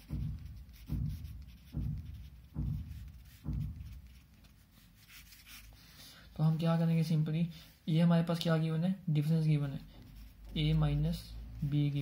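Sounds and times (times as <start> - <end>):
marker scratching on paper: 0.0 - 6.0, 9.9 - 12.0.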